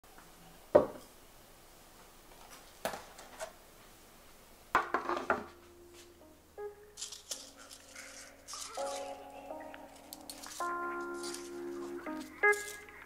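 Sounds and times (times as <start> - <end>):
items clattering on table: 4.8 - 5.6, 7.0 - 9.2.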